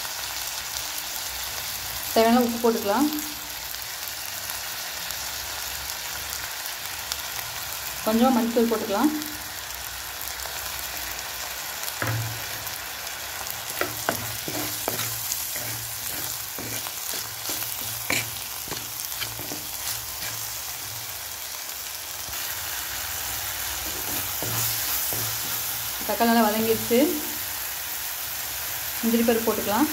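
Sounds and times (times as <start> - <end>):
vegetables sizzling in oil: 0.0 - 29.9
wooden spatula scraping pot: 13.7 - 20.9, 23.8 - 26.1.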